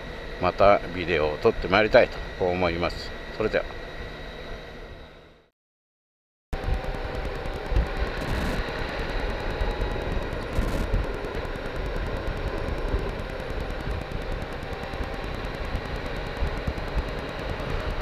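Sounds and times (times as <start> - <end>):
motorcycle engine running: 6.6 - 18.0
wind and road noise: 6.6 - 18.0.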